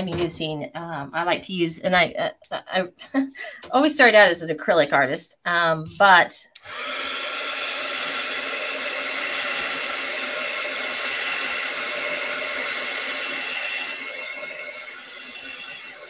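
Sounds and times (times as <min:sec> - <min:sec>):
heat gun blowing: 0:06.6 - 0:16.0.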